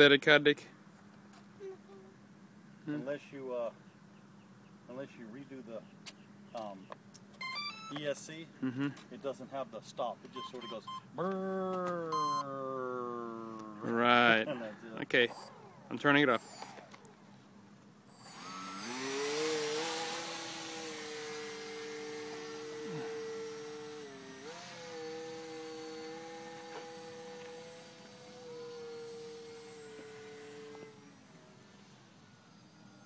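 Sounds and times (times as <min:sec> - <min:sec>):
model plane motor whining: 0:15.2 - 0:17.4, 0:18.1 - 0:33.0.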